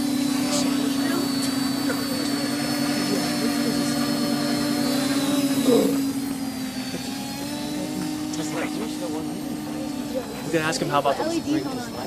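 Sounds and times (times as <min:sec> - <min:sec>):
drone motors buzzing hum: 0:00.0 - 0:12.0
high motor whine: 0:00.0 - 0:12.0.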